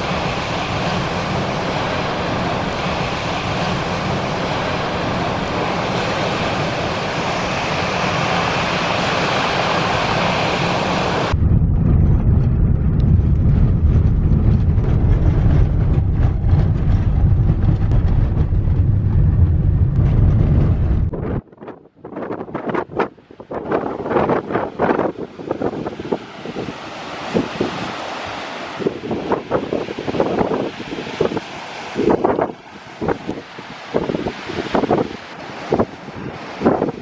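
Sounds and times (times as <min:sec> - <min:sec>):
surf: 0:00.0 - 0:21.4, 0:23.8 - 0:37.0
strong wind: 0:00.0 - 0:37.0
wind buffeting microphone: 0:00.0 - 0:37.0
car driving over gravel: 0:11.4 - 0:21.1.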